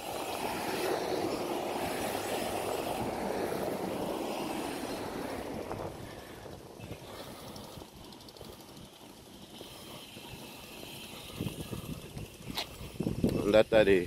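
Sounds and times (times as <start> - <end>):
cars driving past: 0.0 - 10.1.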